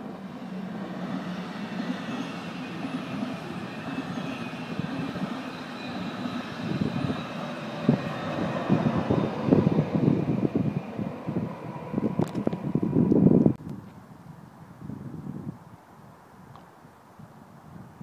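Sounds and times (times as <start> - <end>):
train wheels rumbling on rails: 0.0 - 13.6.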